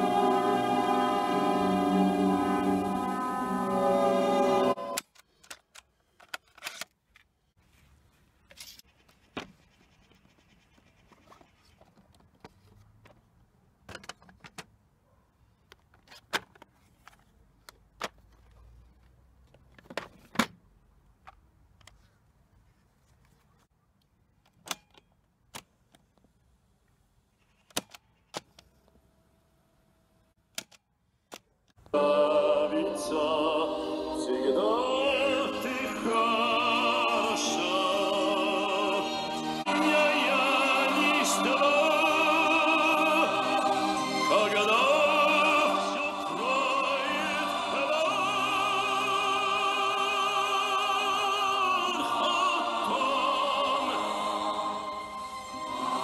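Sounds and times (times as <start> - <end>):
opera music from speaker: 0.0 - 5.0, 31.8 - 56.0
plastic cassette clicks: 27.6 - 28.7.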